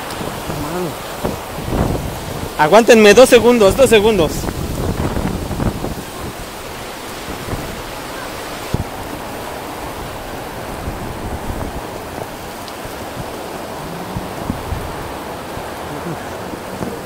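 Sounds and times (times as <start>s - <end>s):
heavy rain falling: 0.0s - 17.0s.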